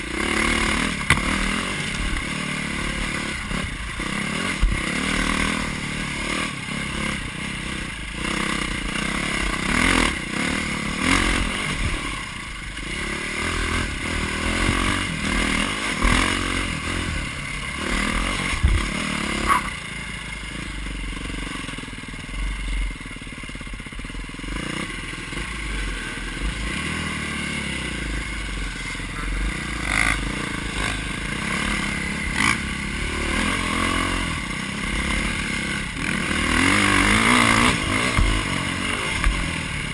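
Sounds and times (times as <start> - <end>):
dirt bike engine revving: 0.0 - 39.9
sharp knocks from terrain: 1.0 - 2.2, 37.6 - 39.5.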